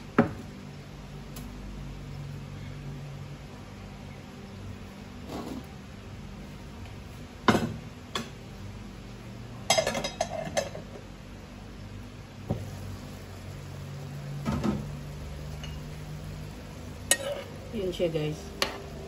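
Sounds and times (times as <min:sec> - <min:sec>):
low steady hum: 0:00.0 - 0:19.0
cookware clanking: 0:09.7 - 0:11.0, 0:17.1 - 0:17.5.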